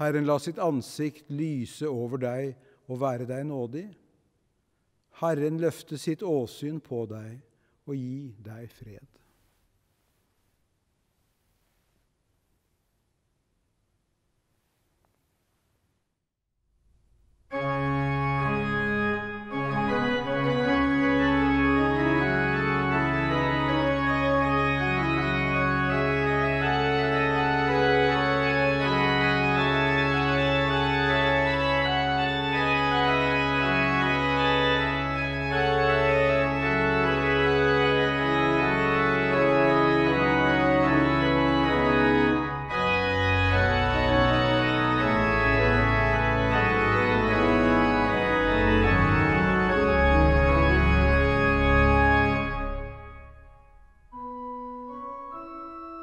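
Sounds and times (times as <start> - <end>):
church organ playing chords: 0.0 - 3.9, 17.5 - 56.0.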